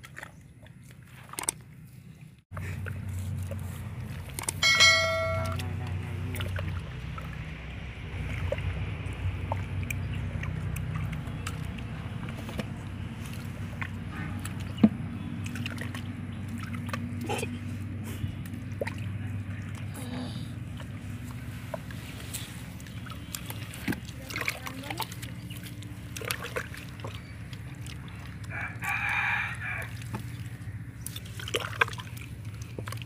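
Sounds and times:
low motor drone: 0:02.6 - 0:28.5
short high-pitched tone: 0:04.6 - 0:05.6.

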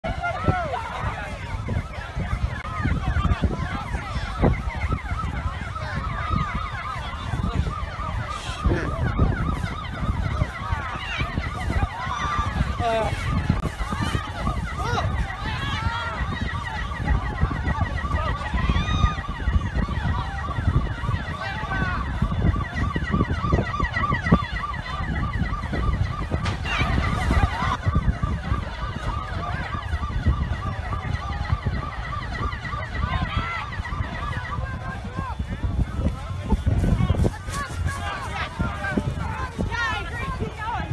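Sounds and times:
emergency sirens yelping: 0:00.0 - 0:40.9
pulsing electronic alarm tone: 0:00.1 - 0:40.9.

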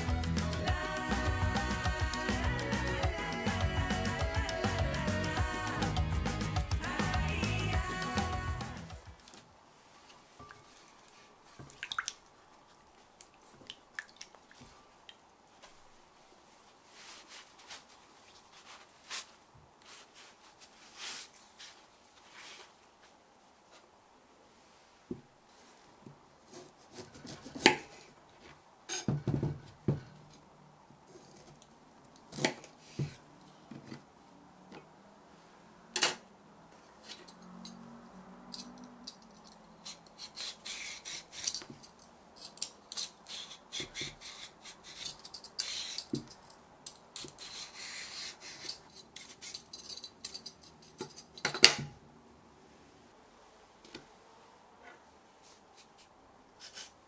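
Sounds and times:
peeler scraping skin: 0:39.8 - 0:41.7.

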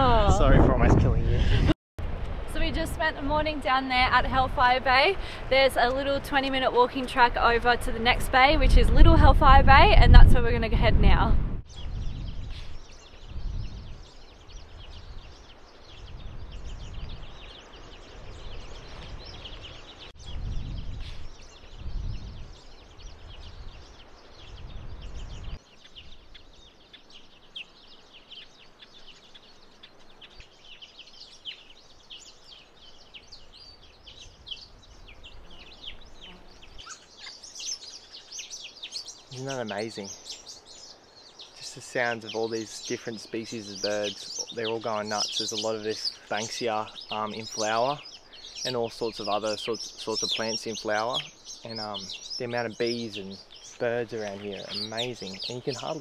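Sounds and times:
wind buffeting microphone: 0:00.0 - 0:26.6
birds chirping and calling: 0:02.6 - 0:56.0.

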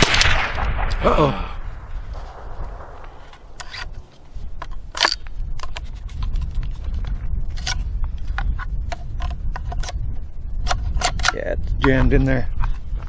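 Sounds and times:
steady low rumble: 0:00.0 - 0:13.0
rifle action clicking and scraping: 0:02.0 - 0:10.0, 0:10.6 - 0:12.0.

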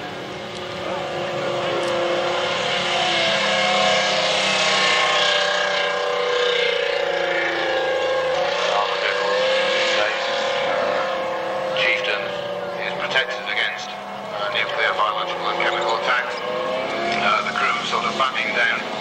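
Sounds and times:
tank engine whine: 0:00.0 - 0:19.0.

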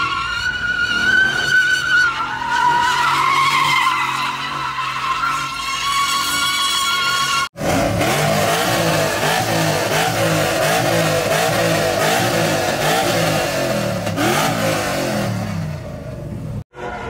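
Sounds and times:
truck engine revving: 0:07.5 - 0:16.7.

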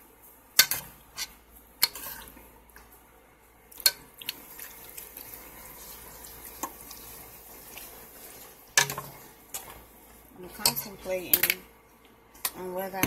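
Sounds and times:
wet stirring of chicken in pot: 0:00.6 - 0:02.5, 0:03.7 - 0:11.6
utensil clicking on cooking pot: 0:10.6 - 0:11.6.

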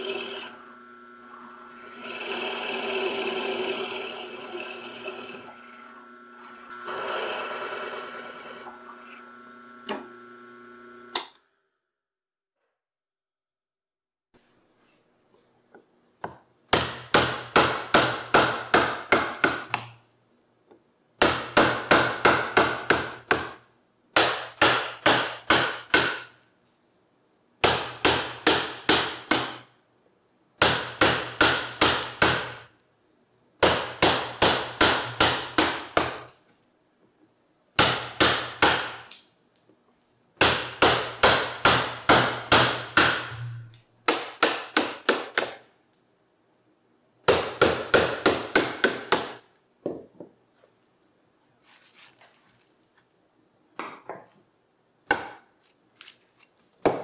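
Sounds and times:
mallet striking chisel into wood: 0:16.2 - 0:20.0, 0:21.2 - 0:23.6, 0:24.2 - 0:26.3, 0:27.6 - 0:29.6, 0:30.6 - 0:32.6, 0:33.6 - 0:36.3, 0:37.8 - 0:39.1, 0:40.4 - 0:45.6, 0:47.3 - 0:50.0, 0:55.1 - 0:55.4.

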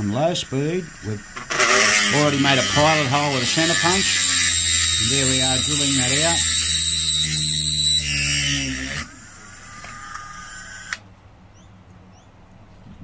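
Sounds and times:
rotary tool motor whine: 0:00.0 - 0:11.0.

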